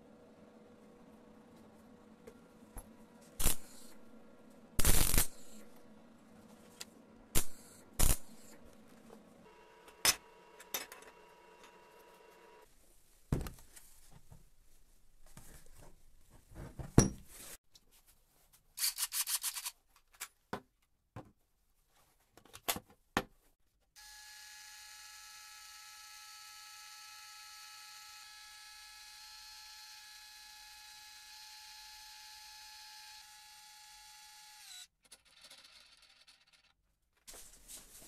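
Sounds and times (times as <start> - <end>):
electric jack motor whine: 7.4 - 12.6, 24.0 - 34.9.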